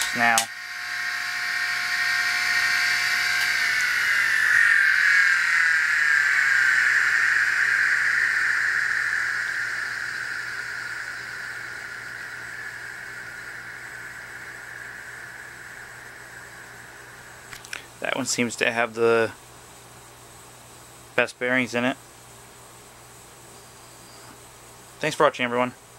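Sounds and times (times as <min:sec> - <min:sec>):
hard drives spinning down: 0:00.0 - 0:19.0.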